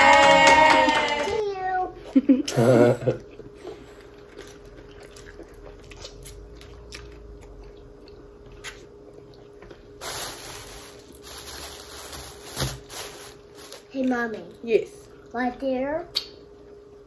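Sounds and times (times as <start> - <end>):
wet chewing and smacking: 3.2 - 10.0.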